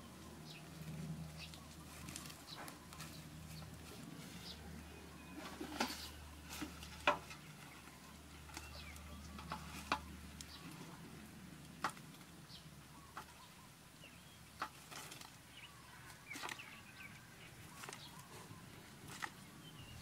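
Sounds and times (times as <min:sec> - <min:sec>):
bird chirps: 0:07.3 - 0:10.8, 0:15.5 - 0:20.0.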